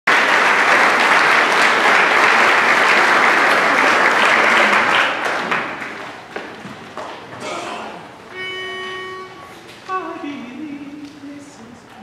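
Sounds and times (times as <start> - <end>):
audience applauding: 0.1 - 7.2.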